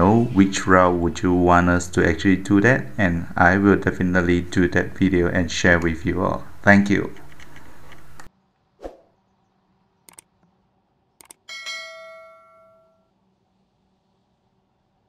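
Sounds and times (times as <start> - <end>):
mouse clicks: 10.1 - 10.4, 11.2 - 11.4
notification bell ding: 11.5 - 13.0.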